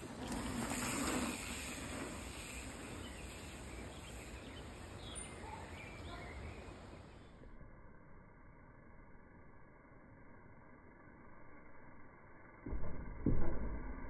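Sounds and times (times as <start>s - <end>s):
steady hiss: 0.0s - 7.4s
faint bird chirps: 2.5s - 8.3s.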